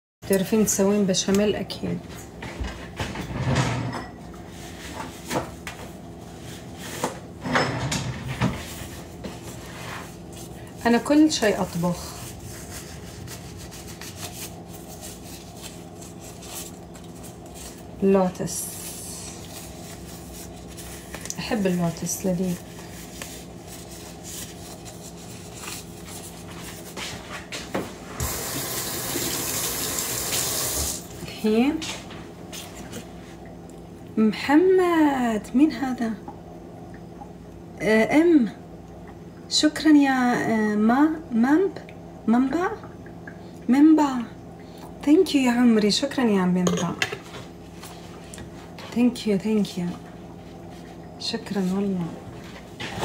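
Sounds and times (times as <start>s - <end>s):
faint steady hum: 0.3s - 53.0s
kitchen drawers opening and shutting: 2.6s - 4.2s, 7.4s - 8.7s
tap water running: 28.2s - 31.2s.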